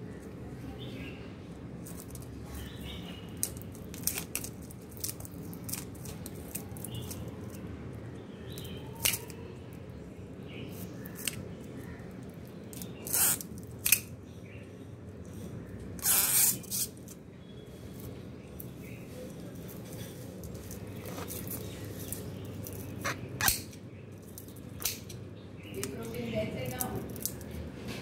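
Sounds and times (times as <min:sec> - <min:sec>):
knife scraping and crunching: 0:01.8 - 0:07.6, 0:08.5 - 0:09.4, 0:10.7 - 0:11.5, 0:12.7 - 0:14.1, 0:16.0 - 0:17.1, 0:19.3 - 0:25.2.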